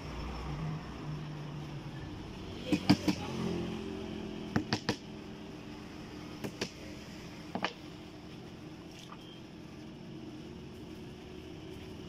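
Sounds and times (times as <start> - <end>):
hammer tapping on wood: 4.5 - 5.0.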